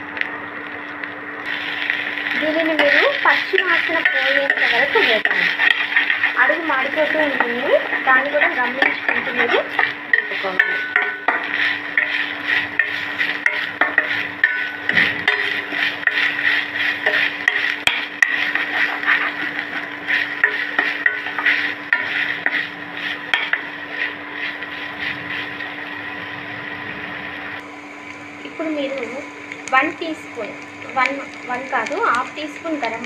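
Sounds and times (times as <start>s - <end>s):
food frying in oil: 0.0s - 33.0s
low hum: 0.0s - 33.0s
spatula scraping frying food: 1.4s - 27.6s.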